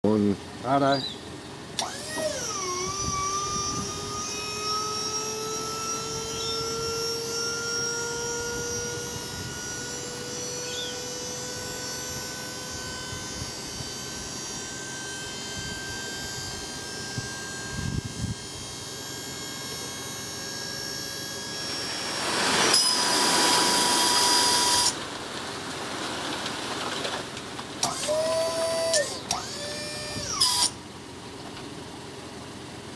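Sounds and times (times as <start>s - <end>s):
hydraulic pump whining: 0.8s - 25.6s, 26.4s - 31.8s
soil sliding off tray: 22.0s - 27.5s.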